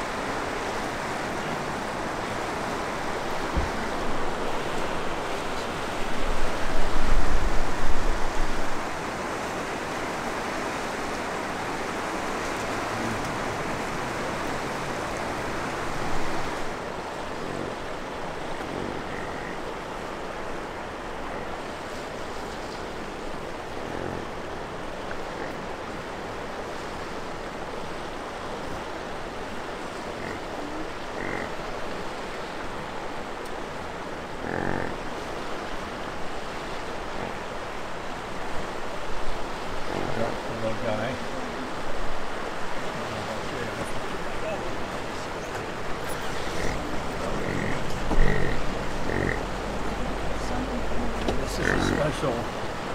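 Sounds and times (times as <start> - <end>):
river rushing: 0.0 - 52.9
bison grunting: 12.8 - 16.4, 17.2 - 19.9, 23.6 - 26.0, 34.4 - 35.1, 45.6 - 50.3, 51.3 - 52.5.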